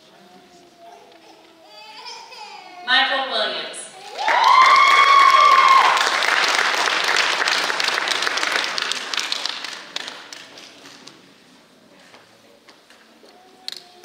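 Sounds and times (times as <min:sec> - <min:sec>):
person cheering: 0:04.0 - 0:06.1
audience applauding: 0:04.0 - 0:10.9.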